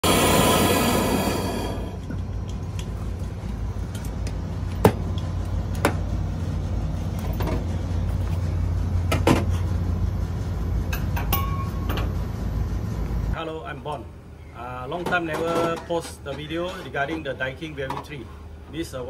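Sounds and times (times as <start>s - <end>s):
low machine hum: 0.0s - 15.1s.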